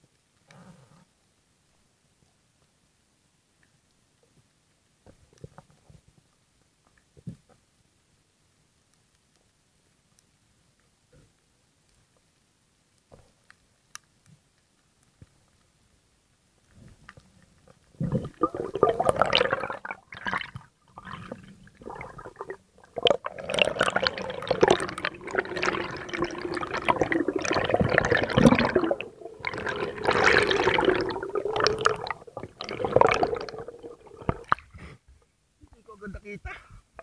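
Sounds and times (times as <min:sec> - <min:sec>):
water gurgling underwater: 0:17.9 - 0:34.8.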